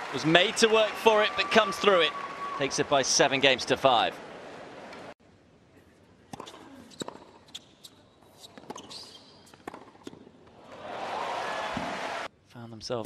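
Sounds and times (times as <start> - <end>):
shoe squeak: 6.4 - 9.6.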